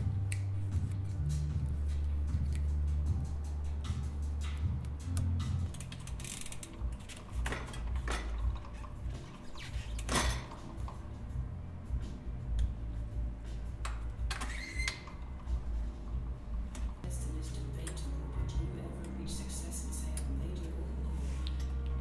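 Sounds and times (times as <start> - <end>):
clicks and metallic rattles: 4.4 - 11.1.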